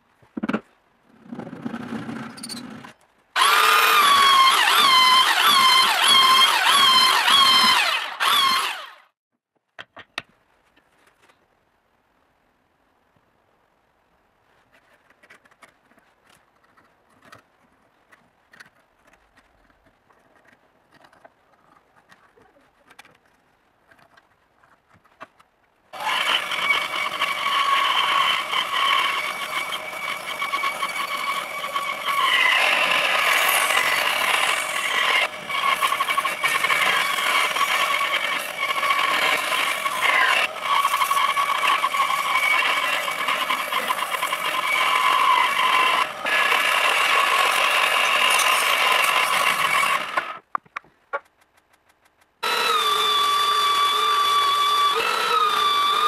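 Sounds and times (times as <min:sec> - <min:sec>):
bandsaw cutting wood: 0:03.4 - 0:09.1, 0:26.0 - 0:50.4, 0:52.4 - 0:56.0.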